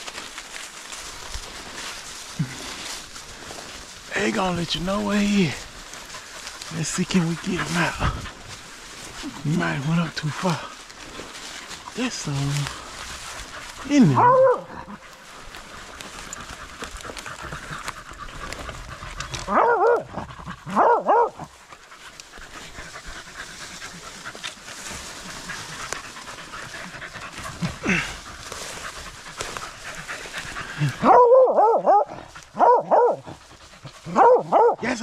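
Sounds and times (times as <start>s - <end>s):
dogs panting: 0.0s - 35.0s
rustling: 0.0s - 35.0s
hounds baying: 0.5s - 35.0s.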